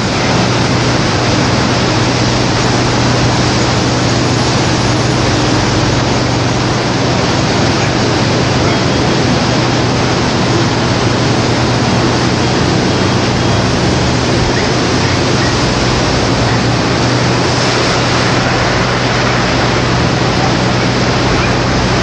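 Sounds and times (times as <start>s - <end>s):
breaking surf: 0.0s - 22.0s
low steady hum: 0.0s - 22.0s
wind: 0.0s - 22.0s.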